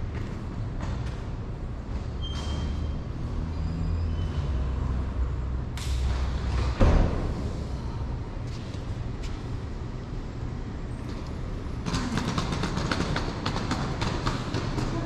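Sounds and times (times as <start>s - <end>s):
rapid clatter of clicks: 11.8s - 14.9s.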